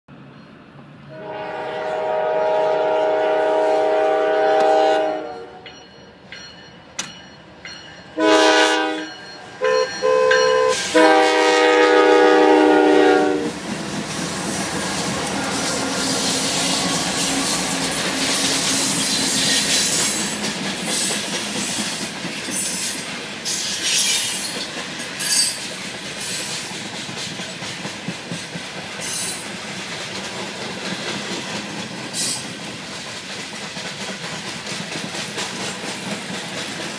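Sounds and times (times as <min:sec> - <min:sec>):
train wheels rumbling on rails: 0:00.1 - 0:36.9
locomotive air horn blasts: 0:01.1 - 0:05.7, 0:08.2 - 0:13.6
wheels clicking over rail joints: 0:13.6 - 0:36.9.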